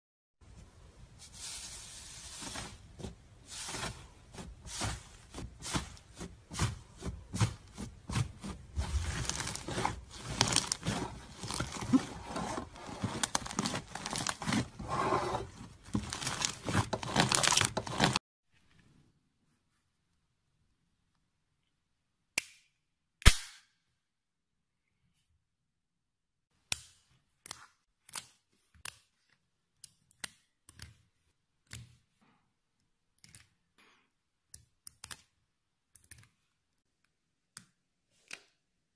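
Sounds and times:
slime crackling and squelching: 1.4 - 14.8, 15.4 - 18.2.

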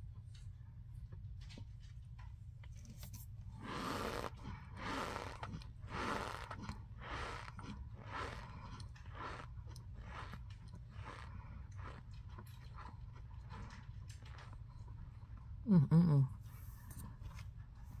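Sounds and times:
chewing crunches: 3.5 - 15.3.

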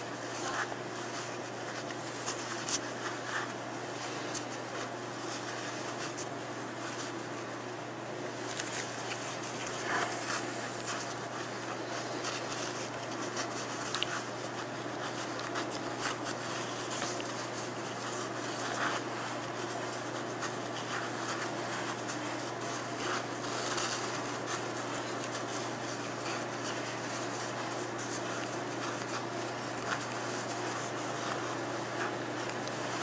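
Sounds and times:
bandage wrap rustling: 0.0 - 7.3, 8.4 - 33.0
steady low hum: 0.0 - 33.0.

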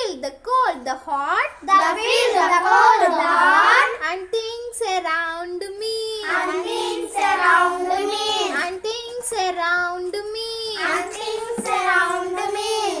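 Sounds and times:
children singing in unison: 1.8 - 3.8, 6.2 - 8.7, 10.8 - 13.0.

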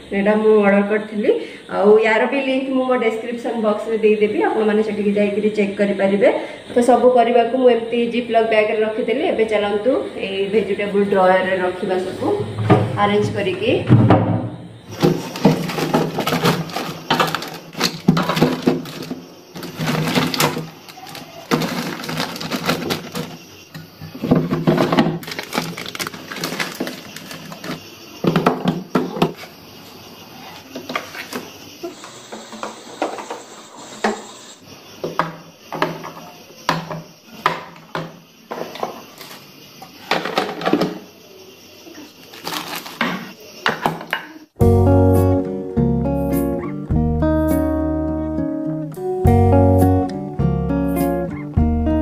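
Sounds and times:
plastic boxes and drawers knocking: 12.4 - 23.4, 24.1 - 29.4, 40.0 - 41.0
plastic bags rustling: 14.9 - 23.5, 24.2 - 28.4, 42.2 - 43.4.

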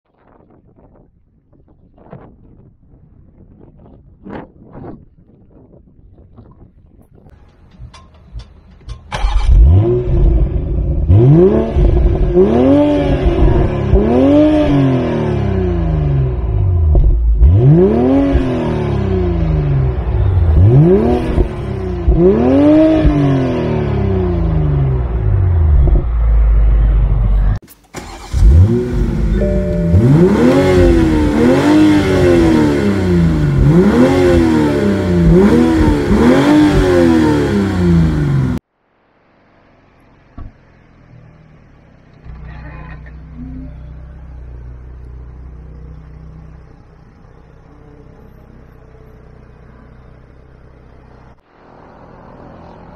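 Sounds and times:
car engine revving: 7.4 - 38.6.

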